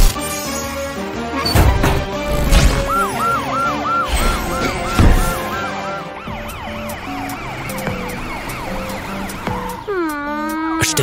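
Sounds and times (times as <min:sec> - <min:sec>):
background music: 0:00.0 - 0:11.0
cartoon police siren wailing: 0:02.8 - 0:11.0.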